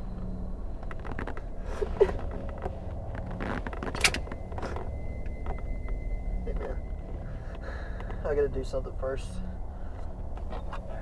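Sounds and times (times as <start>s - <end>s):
creaks and small clicks: 0.7s - 8.2s.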